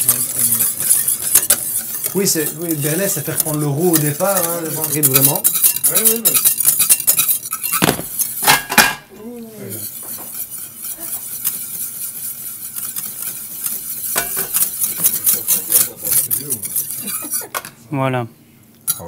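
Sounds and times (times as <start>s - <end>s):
whisk scraping metal pan: 0.0s - 8.9s, 9.6s - 17.7s.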